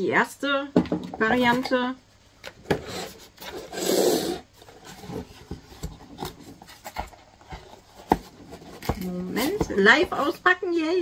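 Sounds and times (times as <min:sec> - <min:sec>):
cardboard rubbing and scraping: 0:02.7 - 0:10.6.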